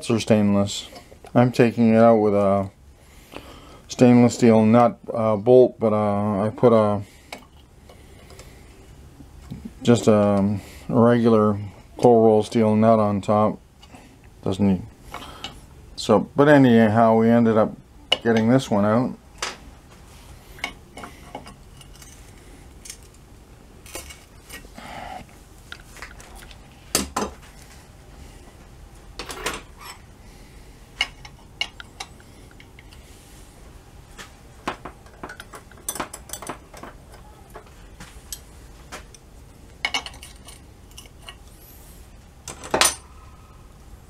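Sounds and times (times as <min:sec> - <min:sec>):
metal tools clinking on metal: 0:35.0 - 0:37.3, 0:39.8 - 0:41.5, 0:42.5 - 0:43.1
tools scraping against bolt: 0:39.8 - 0:41.6.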